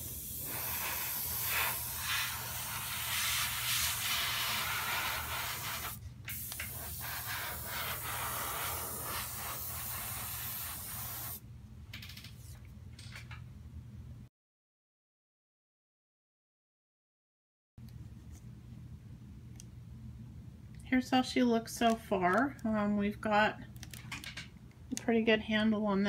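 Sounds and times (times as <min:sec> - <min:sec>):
airbrush hissing in spurts: 0:00.0 - 0:11.4
steady low hum: 0:17.8 - 0:23.8.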